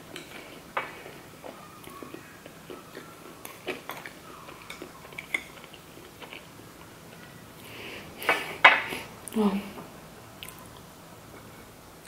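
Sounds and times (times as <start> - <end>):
crackly chewing: 0.0 - 7.6, 10.4 - 11.7.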